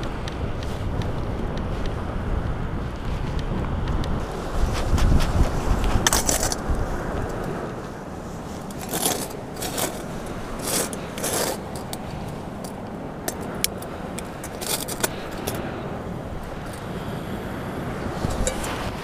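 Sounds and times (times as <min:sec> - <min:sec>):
steady background noise: 0:00.0 - 0:19.0
metal parts scraping: 0:08.7 - 0:15.6
sharp clicks of camping stove: 0:10.8 - 0:15.6.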